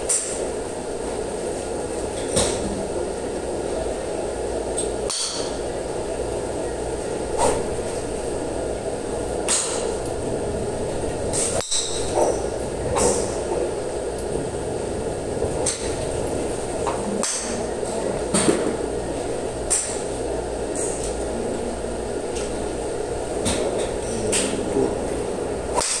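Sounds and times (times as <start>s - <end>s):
golf clubs striking balls: 0.0s - 0.5s, 2.1s - 2.9s, 4.7s - 6.1s, 7.2s - 8.5s, 9.2s - 14.5s, 15.4s - 21.2s, 23.4s - 24.8s, 25.7s - 26.0s
steady hum: 0.0s - 26.0s.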